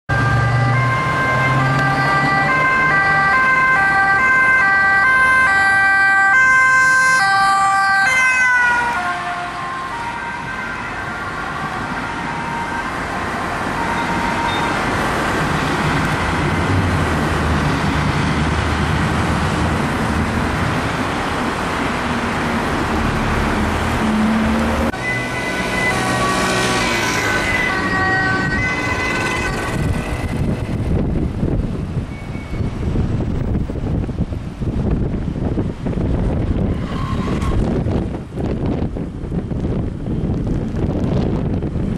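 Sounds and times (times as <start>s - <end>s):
two-tone emergency sirens: 0.1s - 16.6s, 22.7s - 31.3s
traffic noise and engines: 0.1s - 41.9s.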